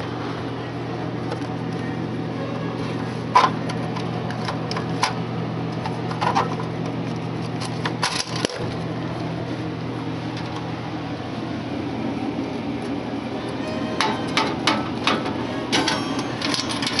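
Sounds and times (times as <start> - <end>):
steady mechanical hum: 0.0 - 17.0
clicks and knocks in vending machine: 14.0 - 17.0.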